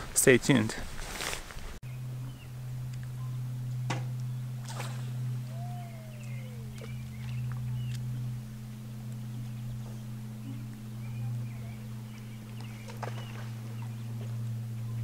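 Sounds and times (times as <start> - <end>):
steady low hum: 1.6 - 15.0
faint bird chirps: 4.2 - 15.0
short falling call: 4.6 - 8.1.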